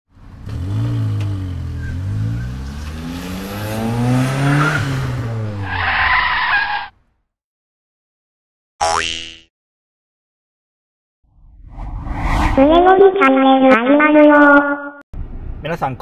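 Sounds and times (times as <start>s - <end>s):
car engine revving: 0.2s - 5.8s
tire screech: 0.4s - 7.0s.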